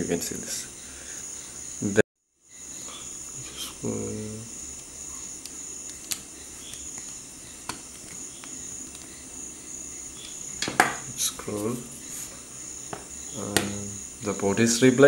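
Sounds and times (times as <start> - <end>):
crickets chirring: 0.0 - 15.0
person humming: 2.9 - 4.5
small tools clicking: 5.4 - 9.1.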